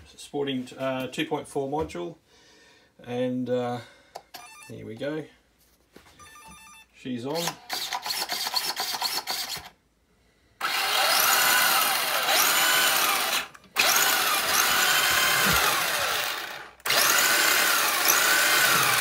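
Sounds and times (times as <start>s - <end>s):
electric motor whine: 10.6s - 19.0s.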